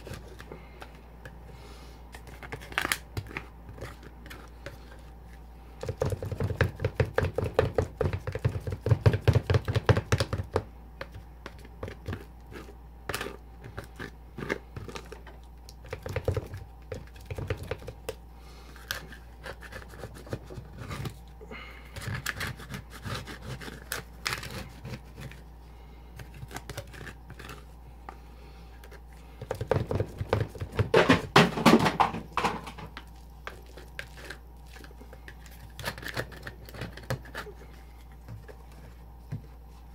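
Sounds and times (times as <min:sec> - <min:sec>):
fast sharp spatula taps: 0:05.8 - 0:12.2.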